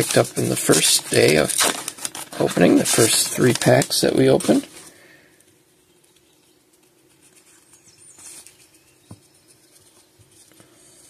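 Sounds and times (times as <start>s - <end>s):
cards rustling and sliding: 0.0s - 4.9s
faint steady hum: 0.0s - 11.0s.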